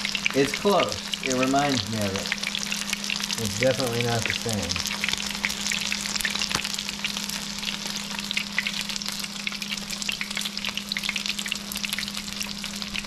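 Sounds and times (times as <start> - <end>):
fish frying crackling pops: 0.0 - 13.0
steady low hum: 0.0 - 13.0.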